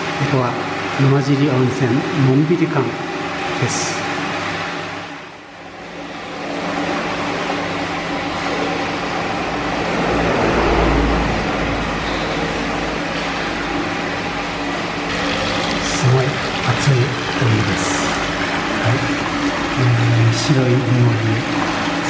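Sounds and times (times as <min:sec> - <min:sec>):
water pouring into a bath: 0:15.1 - 0:22.0.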